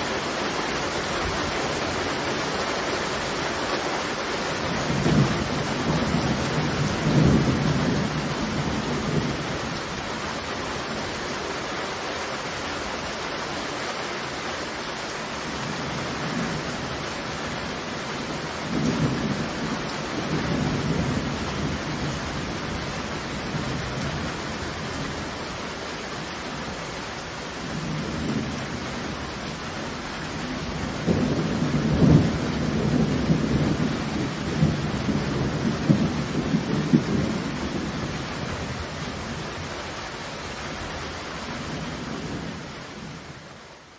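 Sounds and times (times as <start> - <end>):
heavy rain falling: 0.0 - 43.9
thunder rumbling: 4.6 - 10.9, 15.5 - 25.2, 27.5 - 39.7.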